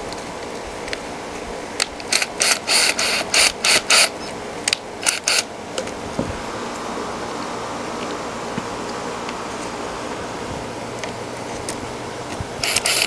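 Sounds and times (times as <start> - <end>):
tool working on plywood: 1.8 - 4.3, 11.0 - 13.0.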